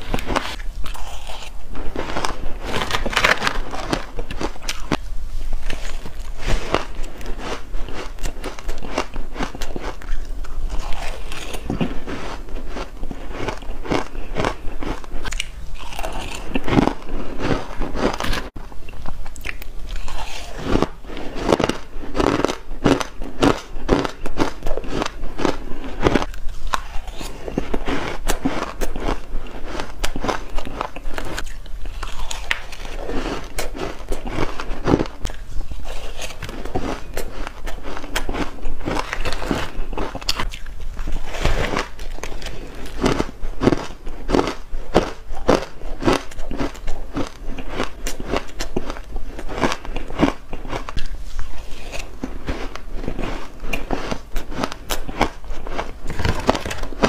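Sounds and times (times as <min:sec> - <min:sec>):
chewing ice crunches: 0:00.0 - 0:57.0.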